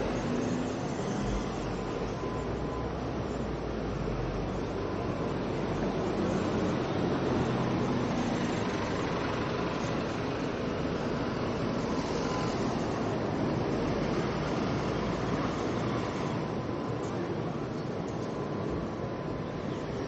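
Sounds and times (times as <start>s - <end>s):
buses driving past: 0.0s - 20.0s.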